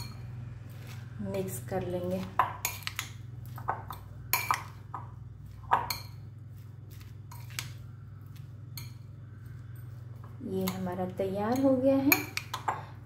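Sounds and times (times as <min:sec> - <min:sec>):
spoon clinking against glass bowl: 0:00.0 - 0:00.3, 0:02.3 - 0:06.3, 0:08.7 - 0:09.1, 0:10.6 - 0:12.9.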